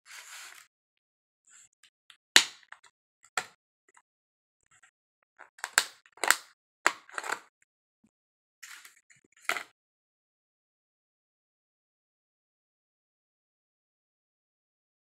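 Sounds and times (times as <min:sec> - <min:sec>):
plastic cups clicking and crackling: 0:05.4 - 0:07.5.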